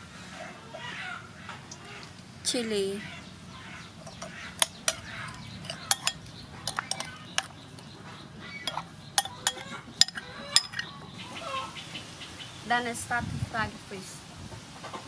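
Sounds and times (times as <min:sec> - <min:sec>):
chickens clucking: 0:00.0 - 0:02.2, 0:03.4 - 0:12.2
metal spoon scraping ceramic bowl: 0:04.0 - 0:07.8, 0:08.6 - 0:10.9.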